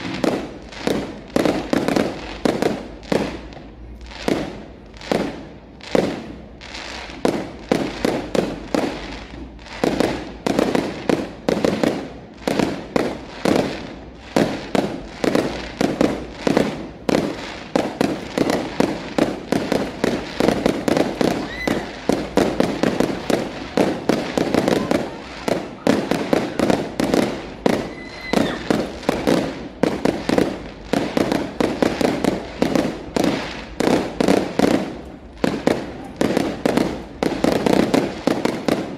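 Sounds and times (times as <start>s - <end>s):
firework shells bursting: 14.4s - 38.9s.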